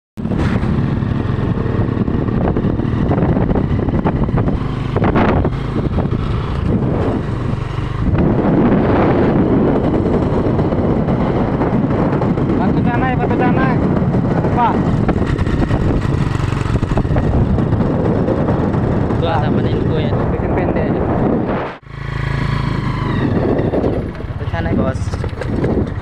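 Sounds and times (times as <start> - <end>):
motorcycle engine running: 0.2 - 26.0
wind buffeting microphone: 0.2 - 26.0.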